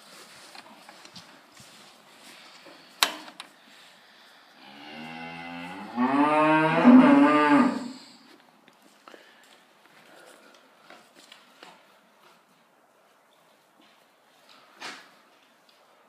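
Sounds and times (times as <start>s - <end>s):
cow mooing: 4.6s - 8.0s.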